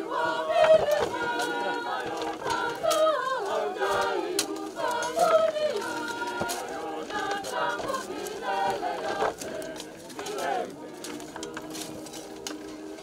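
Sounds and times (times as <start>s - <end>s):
choir singing unaccompanied: 0.0s - 13.0s.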